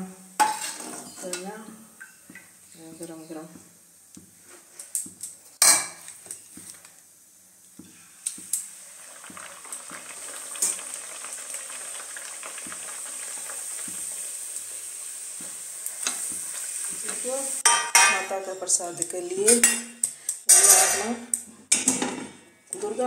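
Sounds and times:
bread sizzling in hot oil: 1.9s - 18.8s.

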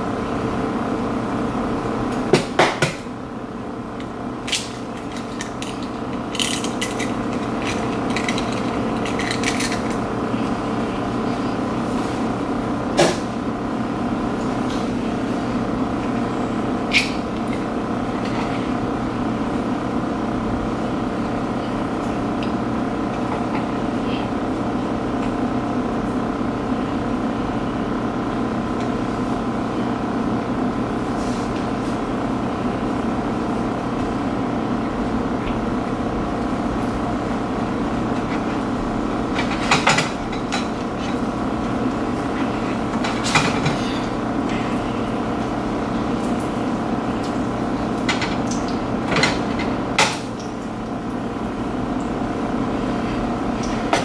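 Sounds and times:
mechanical droning hum: 0.0s - 54.0s.

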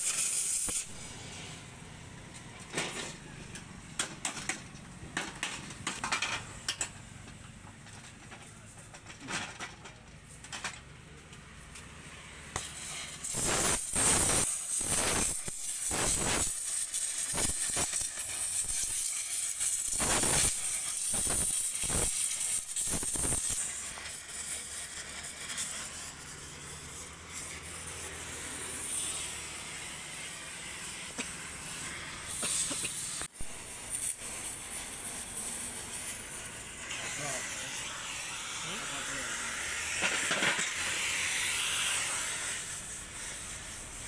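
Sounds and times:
welding torch hissing: 0.0s - 3.9s, 12.2s - 44.0s
loud irregular noise bursts: 12.2s - 44.0s.

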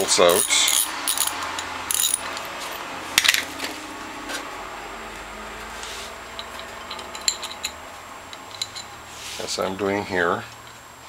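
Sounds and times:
wrench and bolts clinking: 0.3s - 2.5s, 6.3s - 9.0s.

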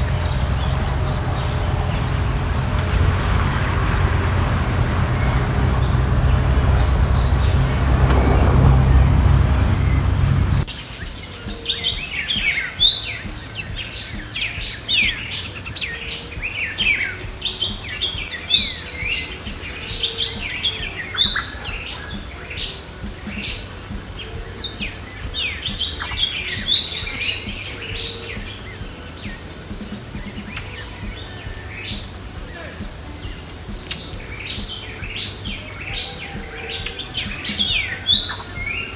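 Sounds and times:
loud low rumble: 0.0s - 10.7s
small birds chirping: 0.0s - 38.9s.

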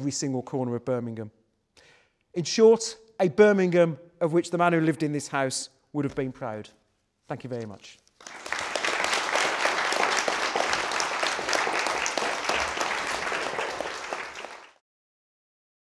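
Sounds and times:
audience applauding: 8.2s - 14.8s.

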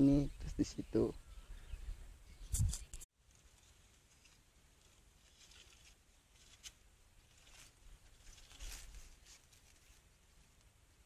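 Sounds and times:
faint brief rustles: 2.4s - 10.6s.

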